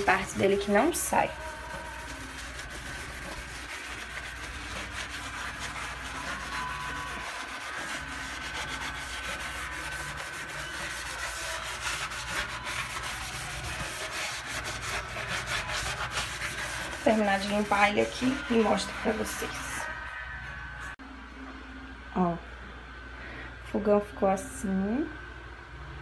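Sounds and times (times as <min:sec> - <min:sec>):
sponge scrubbing metal stove top: 0:00.0 - 0:19.9.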